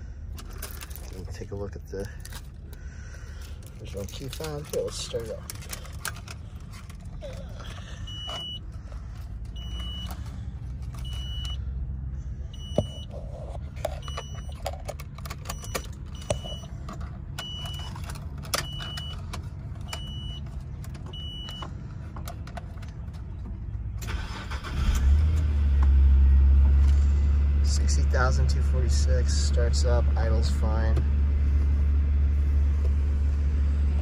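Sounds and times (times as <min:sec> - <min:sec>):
car engine cranking and idling: 0:00.0 - 0:34.0
keys and ignition clicks: 0:00.3 - 0:02.8, 0:03.4 - 0:11.6, 0:12.6 - 0:23.3
car warning chime beeping: 0:08.0 - 0:08.7, 0:09.5 - 0:10.2, 0:11.0 - 0:11.6, 0:12.5 - 0:13.1, 0:15.4 - 0:16.7, 0:19.9 - 0:20.5, 0:21.1 - 0:21.7.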